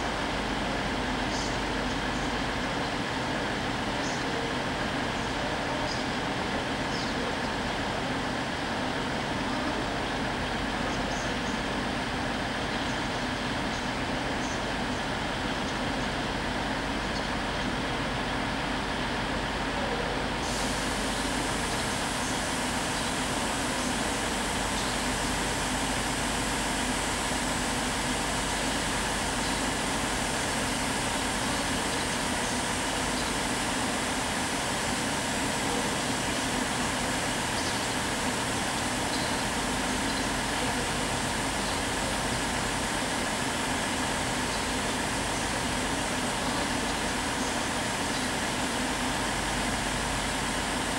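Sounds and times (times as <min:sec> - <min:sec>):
train diesel engines droning: 0:00.0 - 0:50.9.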